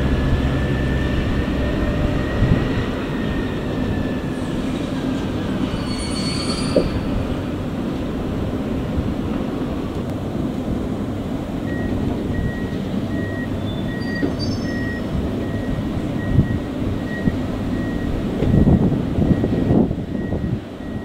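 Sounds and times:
diesel locomotive engine running: 0:00.0 - 0:21.0
reversing alarm beeping: 0:11.6 - 0:21.0.

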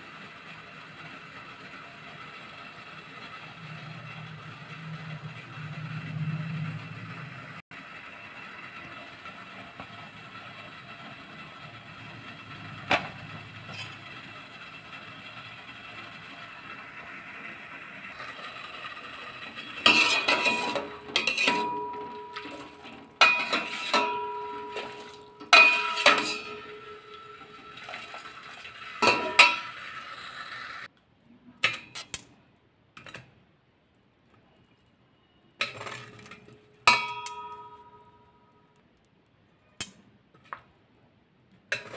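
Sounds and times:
ladle clanking against metal pan: 0:19.8 - 0:27.3, 0:36.9 - 0:38.1.

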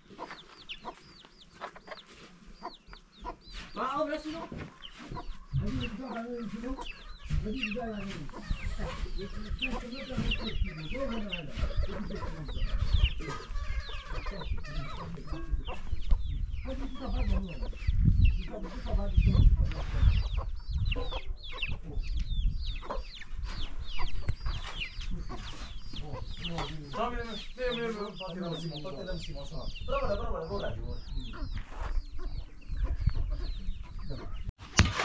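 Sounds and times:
chickens clucking: 0:00.0 - 0:35.0.

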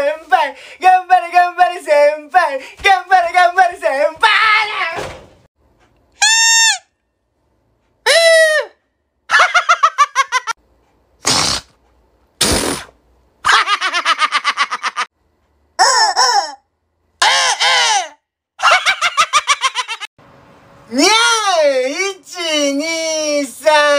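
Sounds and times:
balloon squealing air: 0:06.2 - 0:06.9, 0:11.2 - 0:11.7, 0:12.4 - 0:12.9
toy horn tooting: 0:06.2 - 0:06.9.

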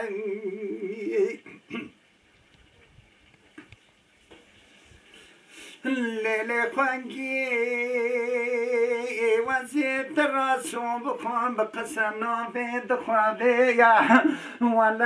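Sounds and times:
man singing unaccompanied: 0:00.0 - 0:01.9, 0:05.7 - 0:15.0.

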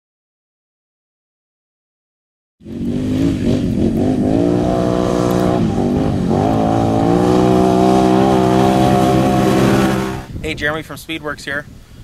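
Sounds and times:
atv engine running: 0:02.7 - 0:10.3.

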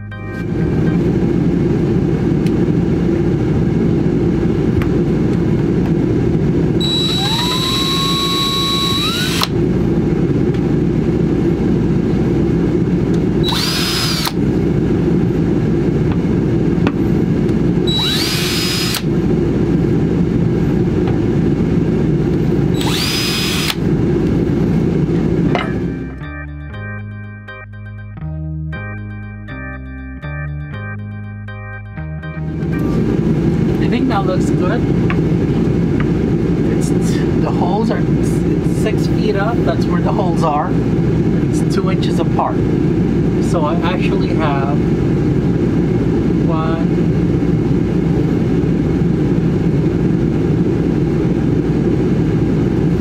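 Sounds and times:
steady low rumble: 0:00.0 - 0:53.0
cordless drill whining: 0:06.8 - 0:09.6, 0:13.4 - 0:14.4, 0:17.9 - 0:19.1, 0:22.7 - 0:23.8.

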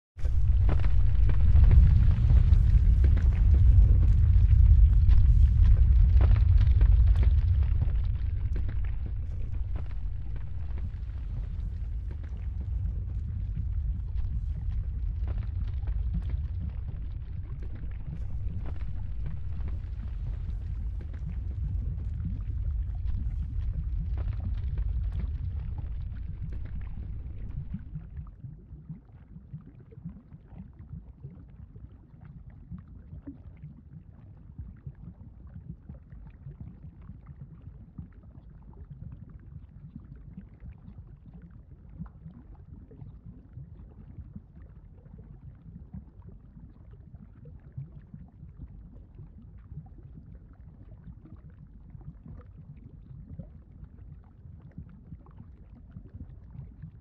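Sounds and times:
deep volcanic rumble: 0:00.1 - 0:28.3
fine crackle: 0:00.2 - 0:28.1.

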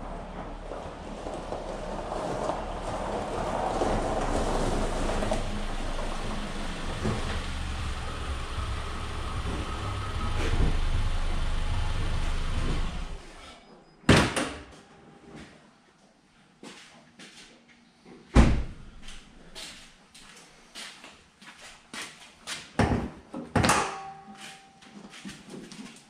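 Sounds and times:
car engine running: 0:00.0 - 0:13.4.

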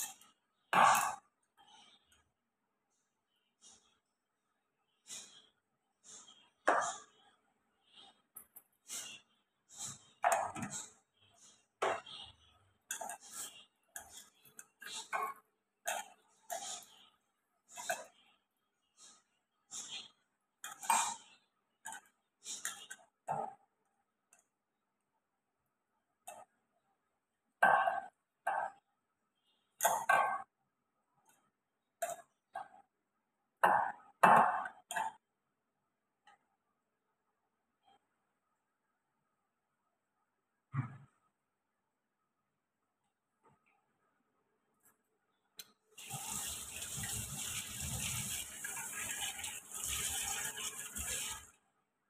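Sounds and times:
tap water running into sink: 0:46.0 - 0:51.5.

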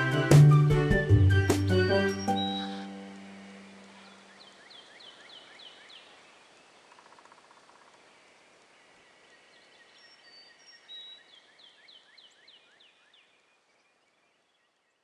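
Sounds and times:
bird whistling and chirping: 0:01.7 - 0:02.9
soft hiss: 0:02.6 - 0:15.0.

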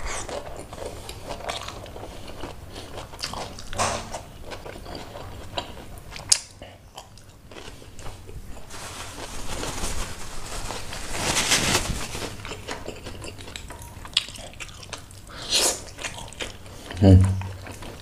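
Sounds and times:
mouth sounds of eating: 0:12.4 - 0:18.0.

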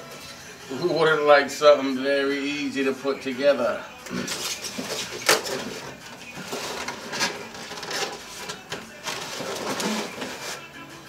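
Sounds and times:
foam rubbing and scraping: 0:04.1 - 0:10.8.

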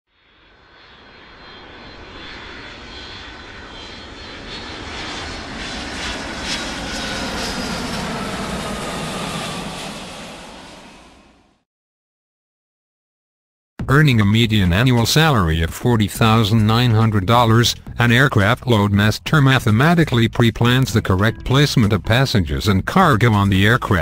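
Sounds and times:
jet engine roar and whine: 0:00.2 - 0:11.6.

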